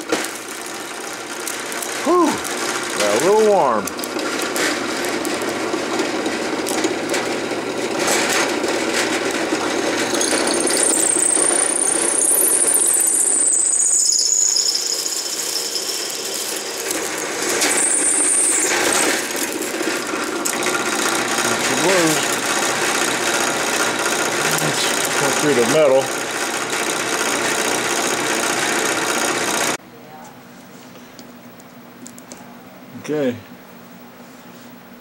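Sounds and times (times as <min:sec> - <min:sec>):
drill press motor running: 0:00.0 - 0:29.8
drill bit squealing: 0:09.8 - 0:29.8.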